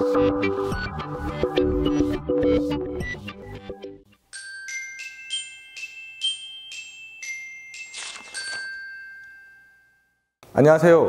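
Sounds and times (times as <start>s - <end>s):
glockenspiel-like bell notes: 4.3s - 10.4s.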